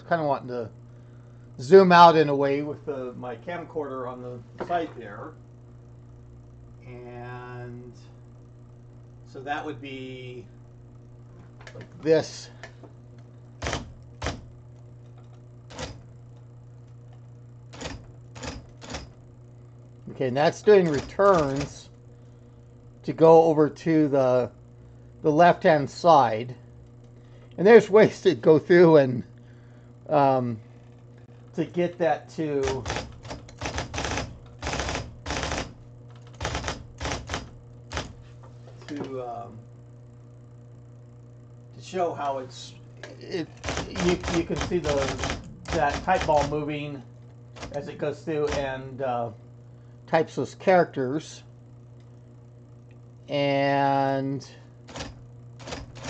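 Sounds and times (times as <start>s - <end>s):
typewriter motor hum: 11.5s - 23.5s, 29.4s - 39.5s, 42.0s - 50.0s, 53.9s - 56.0s
electric typewriter clacking: 13.6s - 14.5s, 15.7s - 16.1s, 17.7s - 19.2s, 20.7s - 21.9s, 32.6s - 38.2s, 43.4s - 46.8s, 47.5s - 48.8s, 54.9s - 56.0s
typewriter keys clacking: 20.9s - 21.8s, 43.6s - 46.5s.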